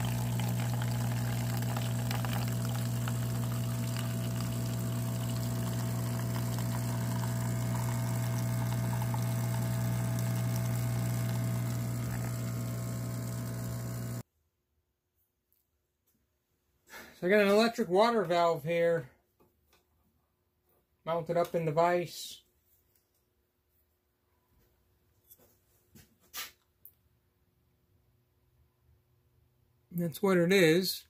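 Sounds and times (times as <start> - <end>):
coffee streaming into cup: 0.0 - 14.2
espresso machine pump humming: 0.0 - 14.2.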